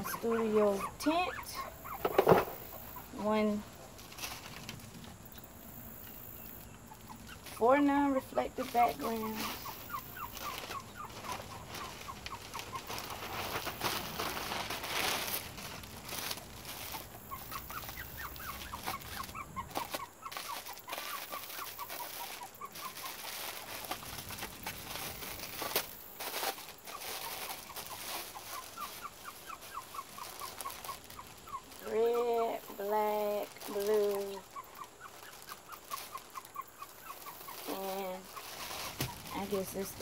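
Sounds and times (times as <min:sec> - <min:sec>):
plastic packaging crinkling: 0:00.0 - 0:05.7, 0:06.8 - 0:40.0.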